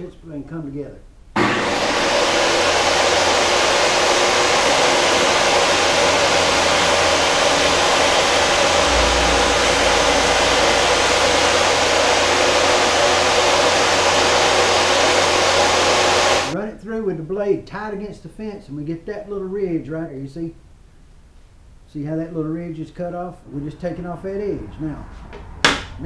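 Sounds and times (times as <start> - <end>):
table saw running: 1.4 - 16.6
deep rumble: 4.9 - 15.3.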